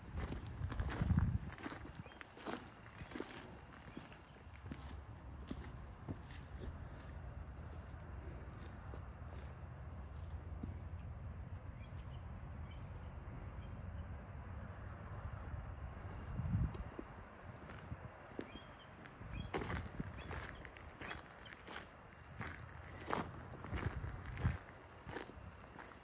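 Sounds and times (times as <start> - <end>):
wind rumble on microphone: 0.0 - 2.2, 15.3 - 18.1, 19.2 - 20.8, 22.4 - 25.6
insects chirring: 0.0 - 26.0.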